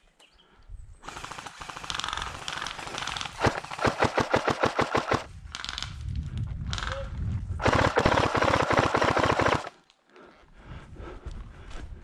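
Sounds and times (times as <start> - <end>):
airsoft gun firing full auto: 1.0 - 5.3, 7.6 - 9.8.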